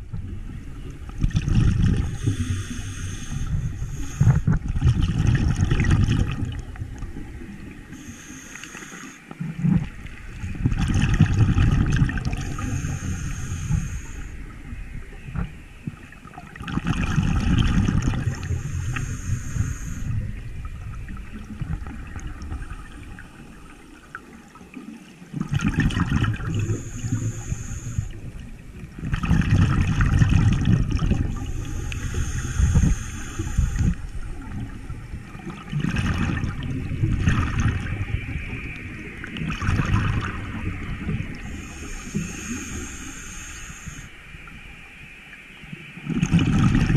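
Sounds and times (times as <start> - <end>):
gurgling exhaled bubbles: 0.0 - 8.2, 9.4 - 14.7, 15.3 - 44.0, 46.0 - 46.9
regulator inhale hiss: 1.9 - 4.7, 7.9 - 9.6, 12.4 - 15.1, 17.8 - 20.4, 26.4 - 28.9, 31.2 - 34.8, 40.4 - 44.5.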